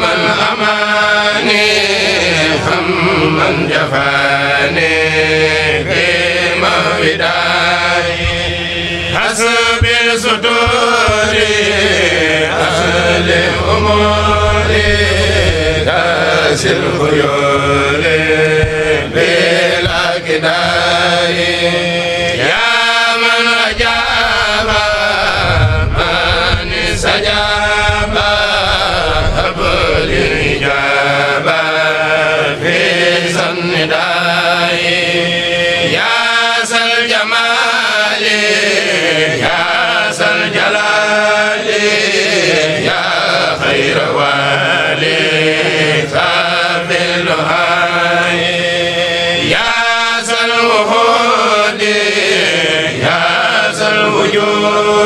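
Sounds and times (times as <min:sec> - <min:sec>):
group chanting: 0:00.0 - 0:55.0
low hum: 0:04.8 - 0:32.4.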